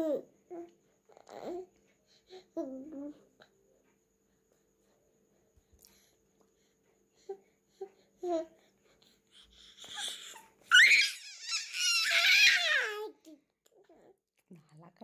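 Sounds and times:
baby squealing cry: 10.0 - 13.0.

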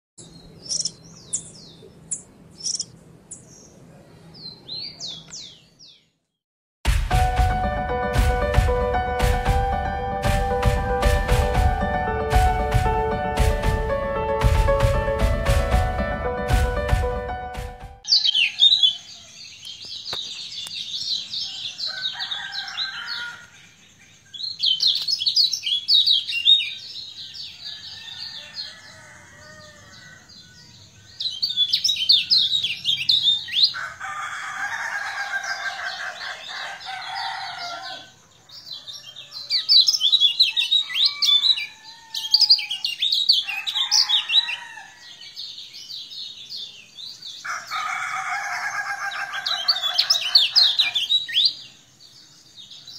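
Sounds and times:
songbird twittering: 0.2 - 6.1, 29.8 - 33.8, 49.0 - 52.9
rooster crowing: 18.1 - 19.4, 21.3 - 23.6, 27.4 - 30.6, 33.4 - 45.3, 47.3 - 51.3.

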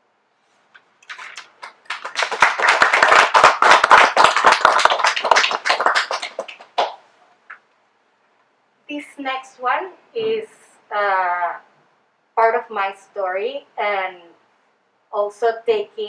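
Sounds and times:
small audience clapping: 1.0 - 7.6.

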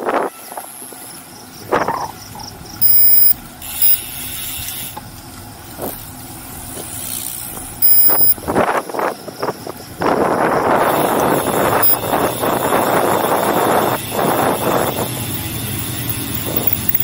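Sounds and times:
faint wind noise: 0.0 - 17.0
high electronic beeps: 2.8 - 4.0, 7.8 - 8.4, 11.6 - 12.1.

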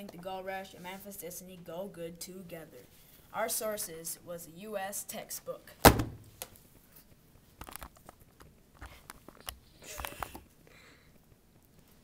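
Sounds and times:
small clicks and knocks: 7.6 - 10.5.

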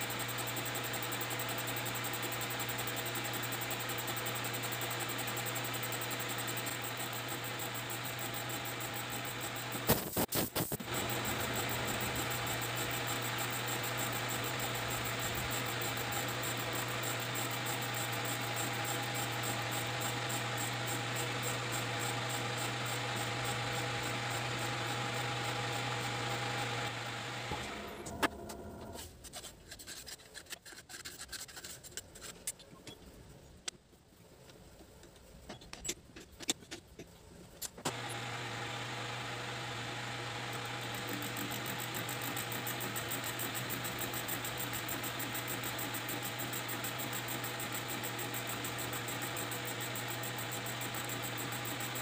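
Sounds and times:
metal lathe running: 10.9 - 29.0, 37.9 - 52.0.

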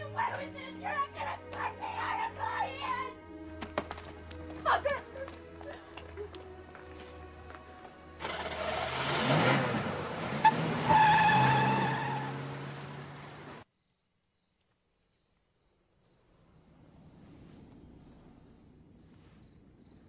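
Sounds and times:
tyres squealing: 0.0 - 13.5
car engine revving: 8.1 - 13.6.

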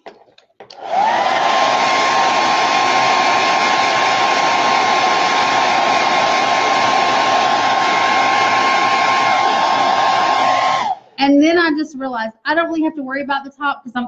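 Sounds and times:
blow dryer running: 0.8 - 11.0.

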